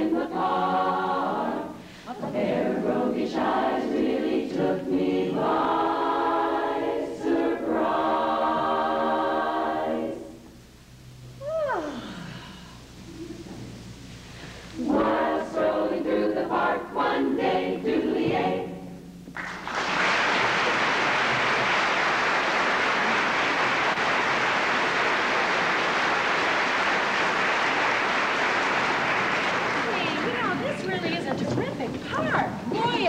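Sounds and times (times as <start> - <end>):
choir singing: 0.0 - 10.4, 14.8 - 19.0
audience applause: 19.4 - 31.2.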